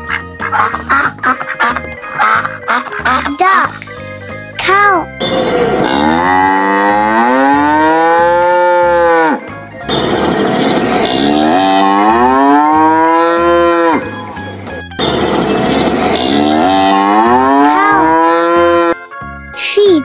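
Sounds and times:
cow mooing: 5.8 - 14.2, 15.9 - 19.0.

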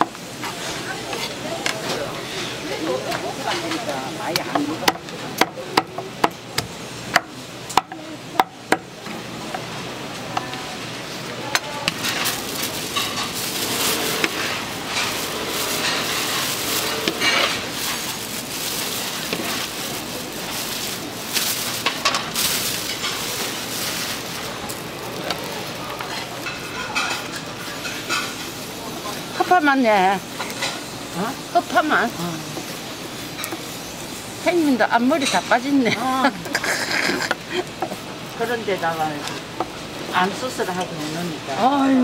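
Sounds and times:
utensils clattering: 11.6 - 28.6
scraping and rustling: 11.9 - 28.5.

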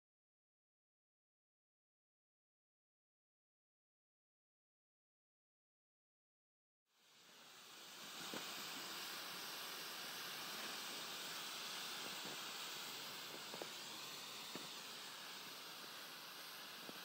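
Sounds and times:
smoke hissing from canister: 6.9 - 17.0.

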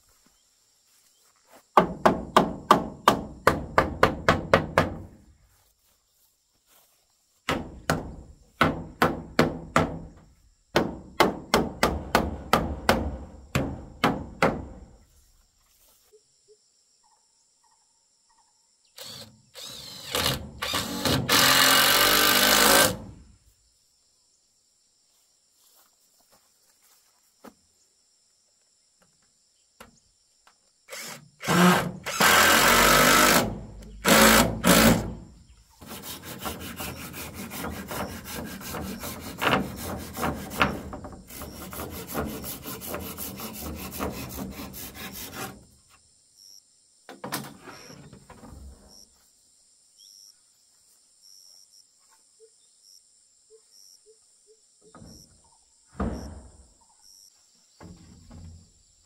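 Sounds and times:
loud power tool noise: 19.0 - 23.1, 30.9 - 35.2.

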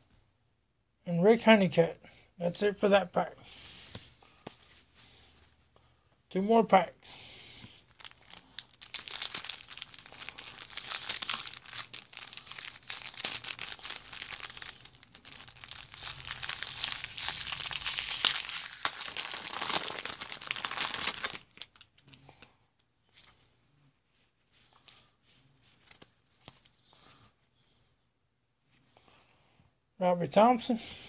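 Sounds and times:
wrapper being torn and crinkled: 7.8 - 22.1.

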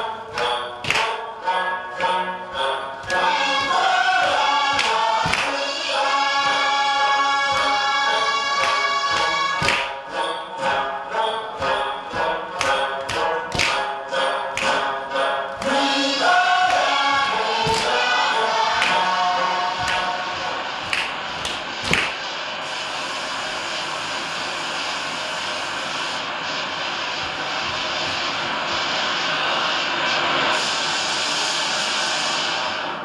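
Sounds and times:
group singing or chanting: 0.0 - 22.3
sharp beats: 0.0 - 23.1
steady rushing noise: 11.5 - 33.0.

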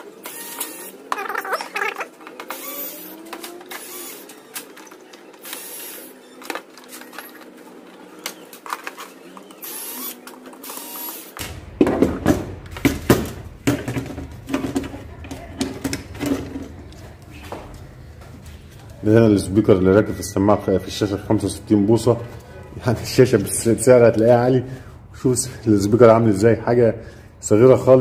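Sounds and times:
electric screwdriver whirring: 0.2 - 1.1, 2.4 - 4.4, 5.4 - 6.2, 9.4 - 11.4.

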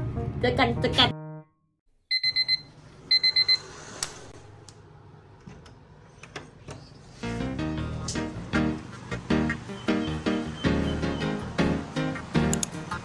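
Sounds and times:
alarm clock beeping: 2.1 - 3.7.

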